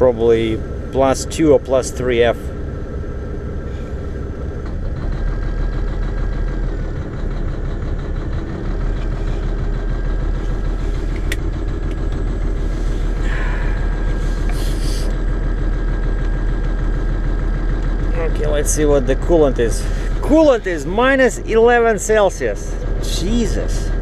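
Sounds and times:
diesel engine idling: 0.0s - 24.0s
thin steady whine: 8.8s - 24.0s.

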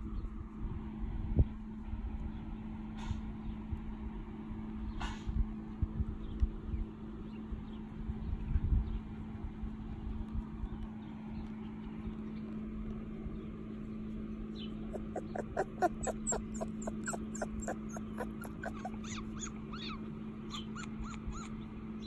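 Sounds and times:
puppy whimpering: 14.9s - 21.5s.

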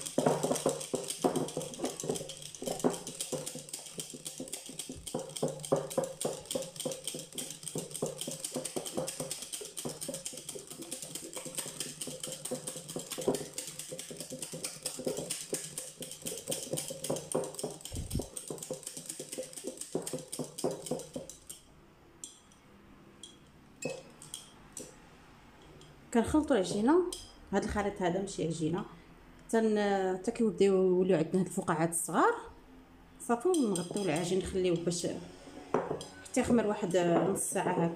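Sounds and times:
whisk clicking against glass bowl: 0.0s - 21.6s, 33.5s - 35.0s.

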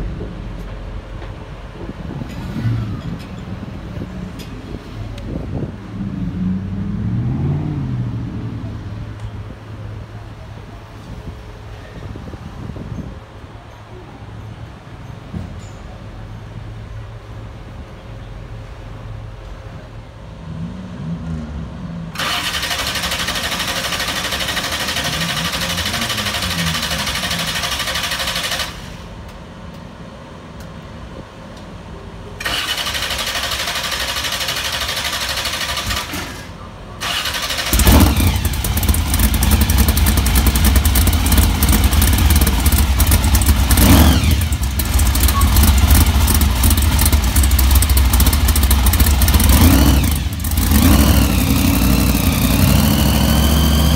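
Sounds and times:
engine revving: 6.0s - 8.6s, 20.5s - 29.1s, 32.4s - 53.9s
truck engine running loud: 20.5s - 29.3s, 31.9s - 53.9s
engine cranking whir: 22.2s - 29.2s, 32.4s - 53.9s.

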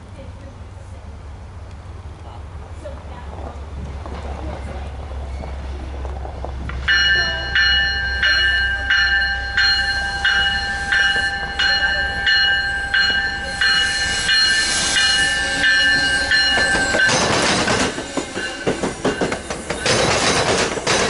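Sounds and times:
train passing: 0.0s - 21.0s
wheels clattering over rail joints: 15.6s - 21.0s.

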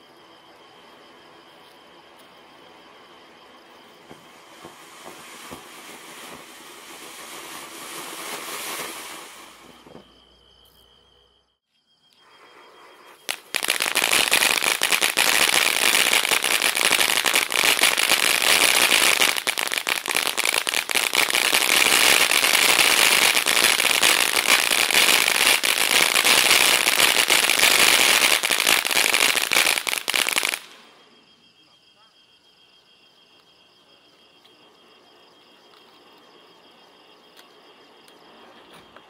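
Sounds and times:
firework fountain hissing and crackling: 2.7s - 10.2s, 12.2s - 31.1s.

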